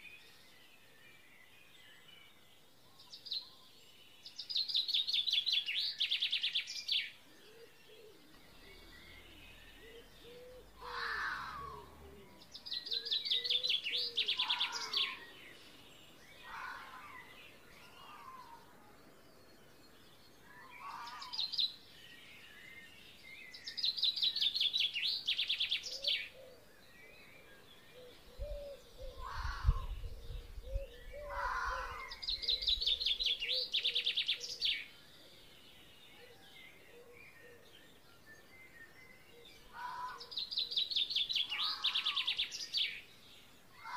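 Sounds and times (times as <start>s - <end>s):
short lower bird calls: 4.6s - 15.8s, 20.4s - 21.7s, 27.7s - 34.9s, 39.2s - 43.0s.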